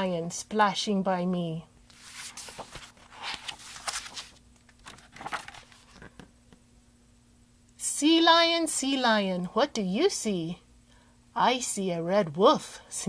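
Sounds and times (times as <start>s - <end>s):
book page turning: 1.9s - 6.3s.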